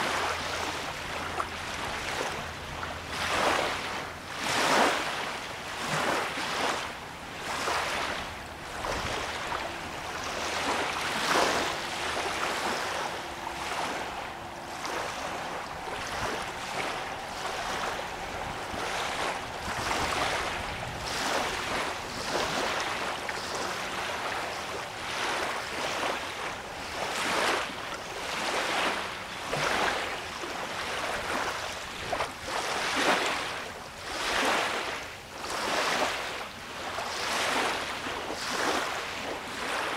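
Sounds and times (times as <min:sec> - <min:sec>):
lake waves lapping at shore: 0:00.0 - 0:39.9.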